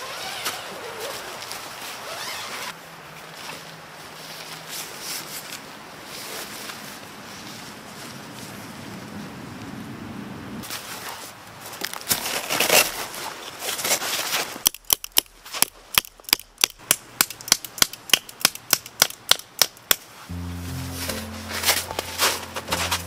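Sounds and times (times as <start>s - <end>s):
rustling and crackling: 20.2s - 23.0s
background music: 20.3s - 23.0s.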